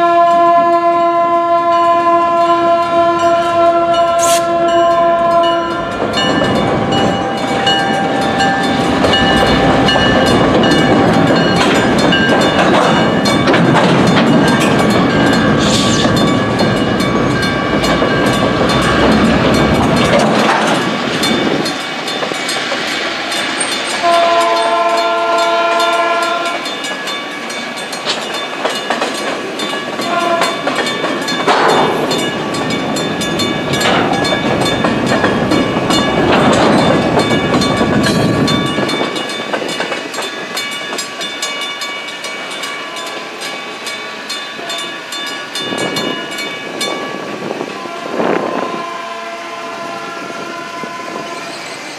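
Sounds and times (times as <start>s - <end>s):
train horn: 0.0s - 11.6s, 24.0s - 26.7s, 30.0s - 30.8s, 47.4s - 51.8s
crossing bells ringing: 1.7s - 51.9s.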